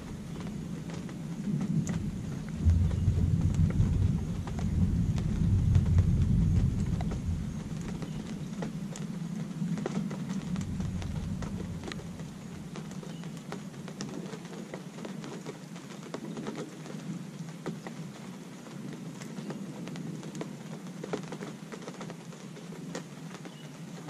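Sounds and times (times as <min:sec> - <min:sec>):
thunder rumble: 0:00.0 - 0:14.3
steady rain with drops tapping: 0:00.0 - 0:24.0.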